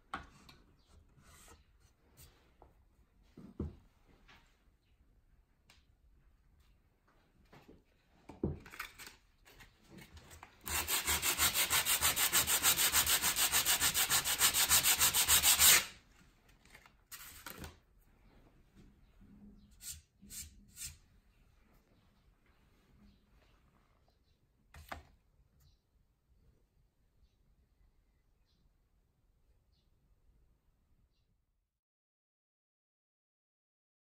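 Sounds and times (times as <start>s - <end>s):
sanding block rubbing wood: 10.7s - 15.9s.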